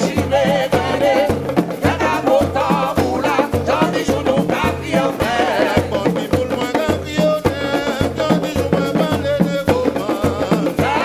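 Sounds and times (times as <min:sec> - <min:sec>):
hand drums beating: 0:00.0 - 0:11.0
people singing: 0:00.0 - 0:11.0.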